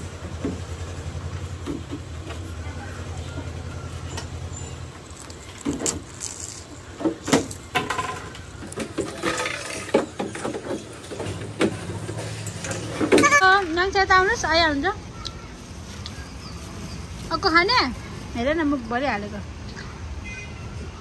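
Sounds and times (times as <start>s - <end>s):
knocks and clatters: 0.2s - 2.5s, 4.1s - 13.4s.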